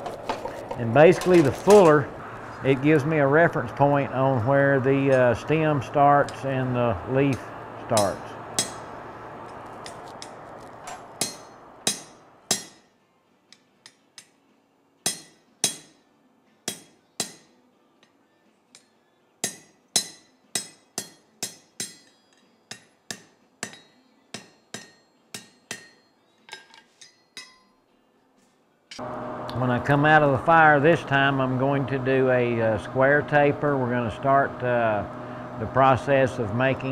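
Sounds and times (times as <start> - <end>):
hammer striking steel on anvil: 7.3 - 9.0, 9.8 - 12.9, 13.5 - 14.4, 15.0 - 16.0, 16.6 - 18.2, 18.8 - 27.8.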